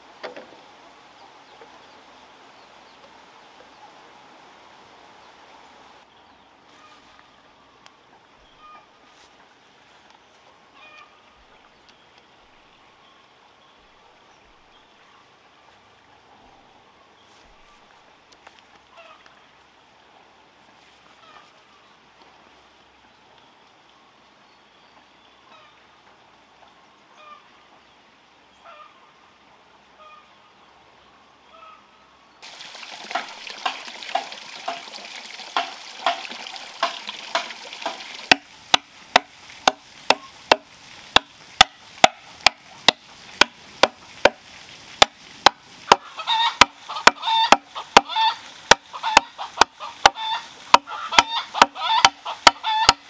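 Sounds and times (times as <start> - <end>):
water splashing onto logs: 32.4 - 53.0
machete chopping bamboo: 35.6 - 44.4, 45.0 - 46.0, 46.6 - 48.1, 48.7 - 53.0
pitched animal calls: 45.9 - 53.0.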